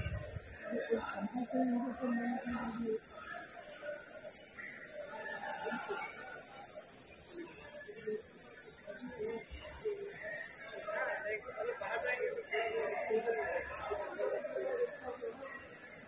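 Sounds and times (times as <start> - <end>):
cicadas buzzing: 0.0 - 16.0.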